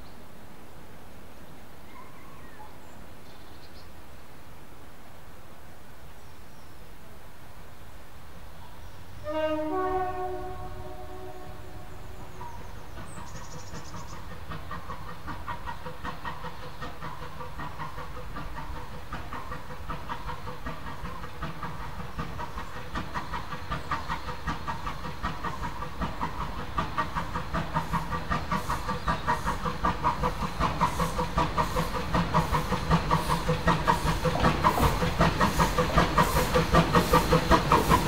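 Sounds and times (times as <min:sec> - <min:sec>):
hiss of steam: 0:08.2 - 0:38.0
steam locomotive chuffing: 0:09.2 - 0:38.0.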